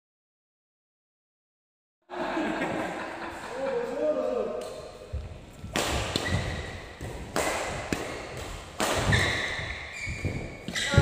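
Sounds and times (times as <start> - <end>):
court shoes squeaking: 4.8 - 11.0
rackets hitting shuttlecock: 5.6 - 11.0.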